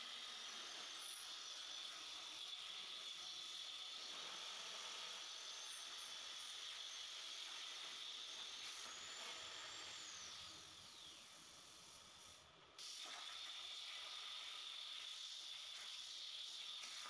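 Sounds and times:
plasma arc hissing: 0:10.4 - 0:17.0.

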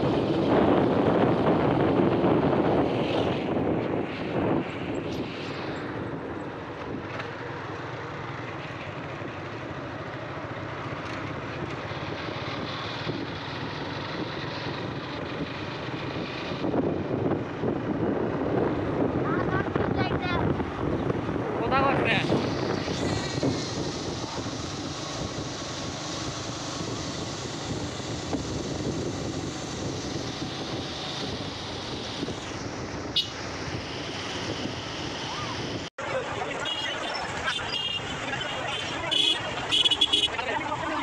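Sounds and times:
wind rushing past microphone: 0:00.0 - 0:07.2, 0:11.9 - 0:35.9
motorcycle engine drone: 0:00.0 - 0:41.0.

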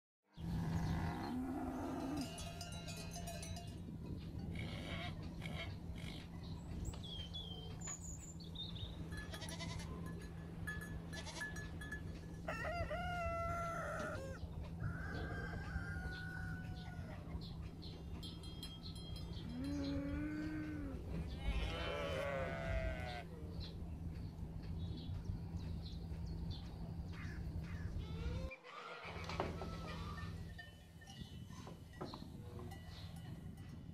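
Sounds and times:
steady low hum: 0:00.4 - 0:28.5
goats bleating: 0:09.3 - 0:10.0, 0:19.6 - 0:23.3.

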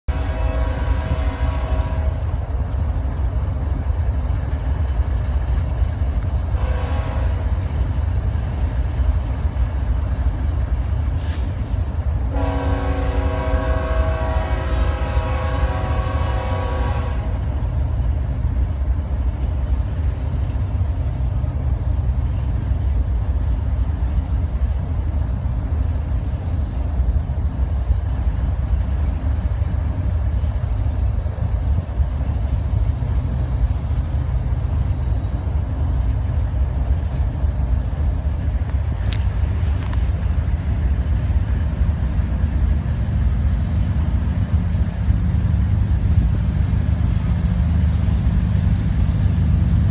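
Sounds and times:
locomotive air horn blasts: 0:00.1 - 0:02.3, 0:06.6 - 0:07.5, 0:12.3 - 0:17.4.

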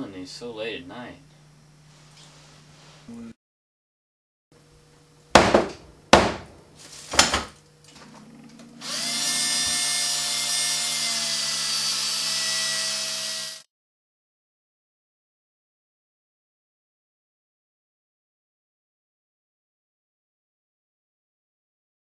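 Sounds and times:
knocks on a workbench: 0:05.4 - 0:07.6
handheld power tool motor: 0:08.8 - 0:13.7.

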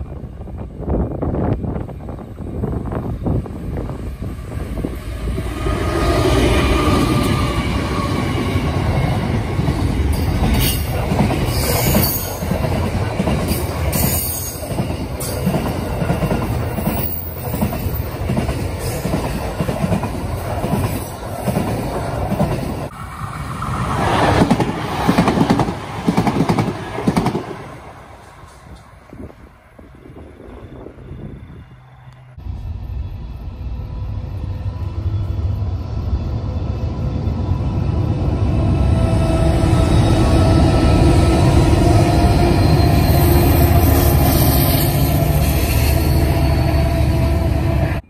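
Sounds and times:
train passing: 0:00.0 - 0:48.0
wheel squeal: 0:41.7 - 0:47.5.

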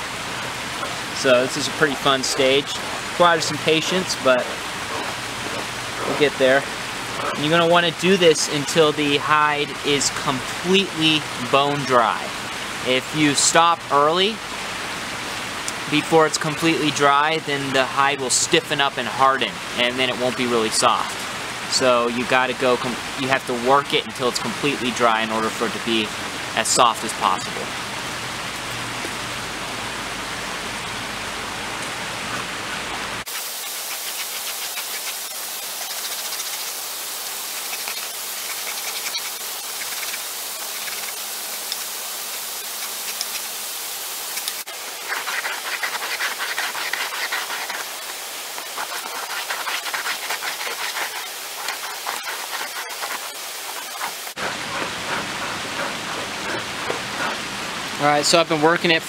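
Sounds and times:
creek rushing: 0:00.0 - 0:59.0
hide rubbing over metal blade: 0:33.6 - 0:36.8, 0:37.4 - 0:41.8, 0:44.4 - 0:57.4.

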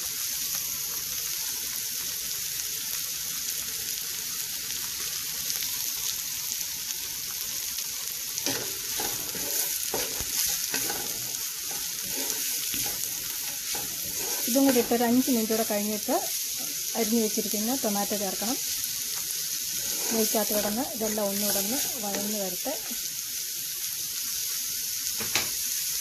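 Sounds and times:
vegetables sizzling in a pan: 0:00.0 - 0:26.0
spatula scraping a pan: 0:08.4 - 0:18.4, 0:19.2 - 0:23.1.

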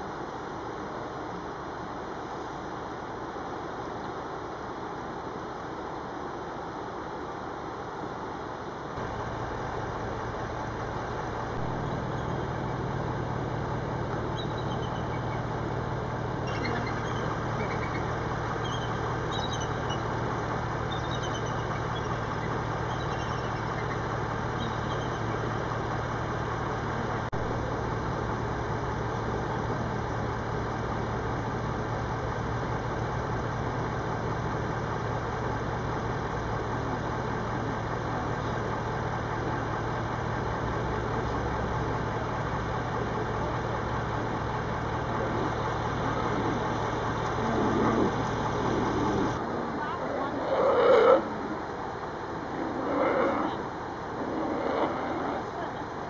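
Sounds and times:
steady low hum: 0:00.0 - 0:56.0
faint high chirps: 0:14.2 - 0:15.5, 0:16.5 - 0:20.2, 0:20.8 - 0:25.4.

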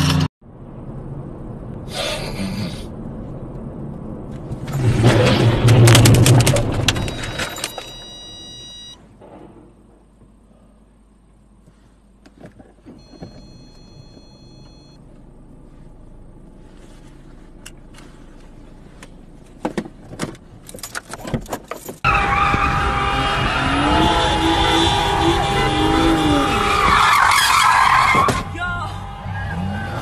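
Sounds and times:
tyres screeching: 0:22.1 - 0:30.0
car engine revving loudly: 0:22.4 - 0:27.0.

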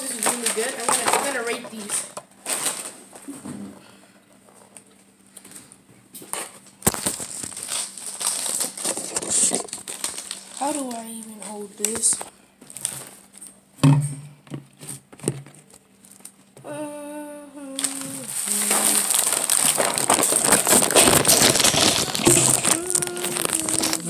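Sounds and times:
plastic snack bag crinkling: 0:00.0 - 0:03.2, 0:06.7 - 0:13.6, 0:15.6 - 0:16.5, 0:17.8 - 0:24.0
person humming: 0:16.6 - 0:19.1, 0:20.4 - 0:24.0.

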